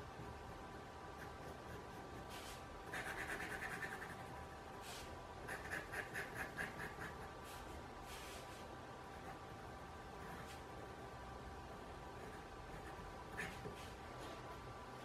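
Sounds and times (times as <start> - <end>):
pen nib scratching on paper: 1.2 - 4.3, 5.4 - 7.3, 12.2 - 14.0.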